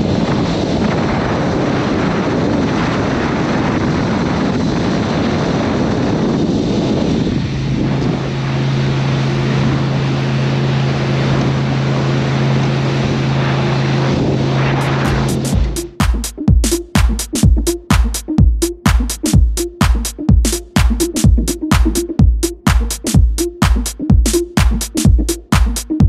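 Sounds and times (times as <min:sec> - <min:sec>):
wind on microphone: 0:00.0 - 0:15.9
water rushing past hull: 0:00.4 - 0:16.0
powerboat engine drone: 0:05.2 - 0:16.0.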